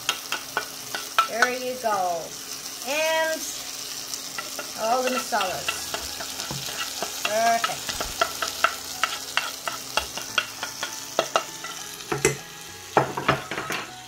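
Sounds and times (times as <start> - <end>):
masala sizzling in a frying pan: 0.0 - 14.0
metal spoon tapping a bowl: 4.4 - 12.4.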